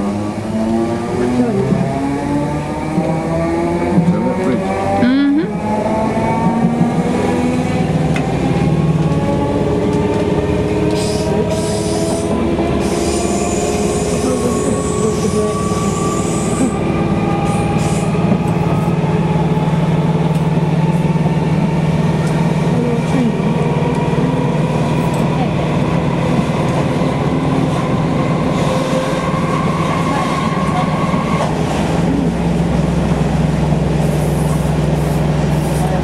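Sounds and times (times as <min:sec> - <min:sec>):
wheels rumbling on track: 0:00.0 - 0:36.0
electric train motors whining: 0:05.8 - 0:31.6.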